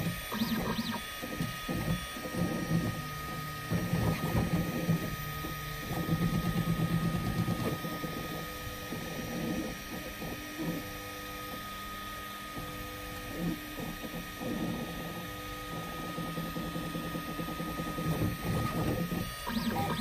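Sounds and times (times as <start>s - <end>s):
stepper motors whining: 0.0s - 8.4s, 12.7s - 20.0s
constant high whine: 0.0s - 20.0s.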